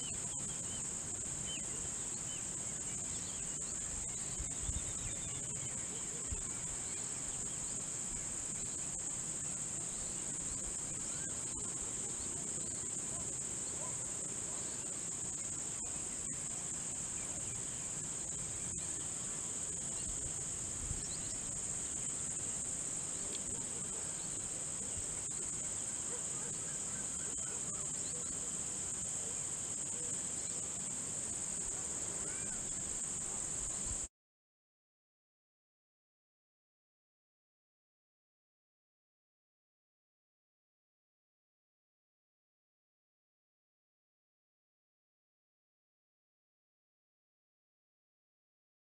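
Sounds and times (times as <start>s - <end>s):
crickets chirping: 0.0s - 34.1s.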